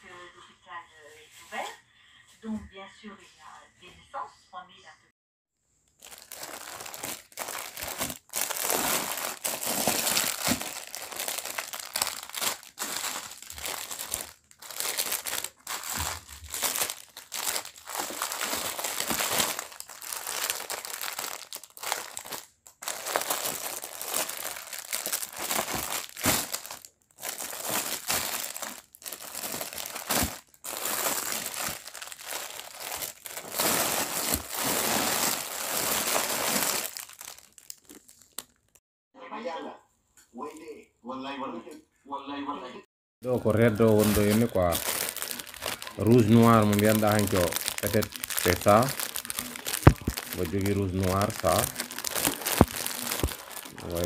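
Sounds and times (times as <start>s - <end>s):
plastic bags crinkling: 5.9s - 38.8s, 43.3s - 54.0s.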